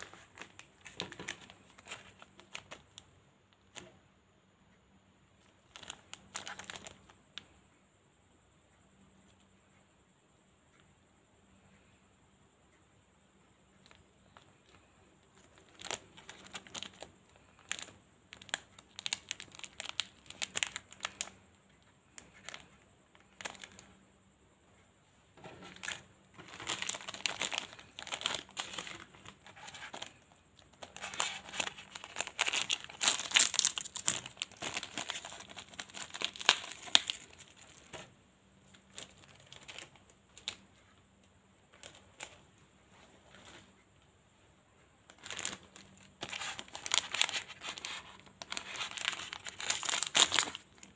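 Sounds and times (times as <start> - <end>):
plastic wrappers crinkling: 0.0 - 3.0, 5.7 - 7.1, 13.9 - 21.4, 22.2 - 23.9, 25.4 - 38.1, 38.7 - 40.6, 41.7 - 42.4, 45.1 - 50.9
packets being torn open: 30.8 - 37.4, 46.2 - 50.6.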